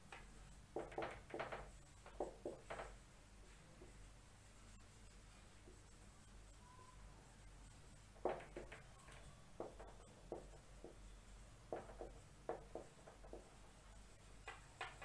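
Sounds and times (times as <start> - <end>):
marker squeaking on a whiteboard: 3.8 - 15.0.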